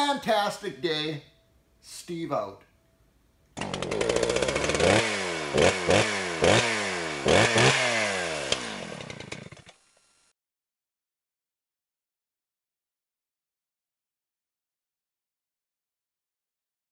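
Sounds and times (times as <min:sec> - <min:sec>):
small gasoline engine revving: 0:03.6 - 0:10.3.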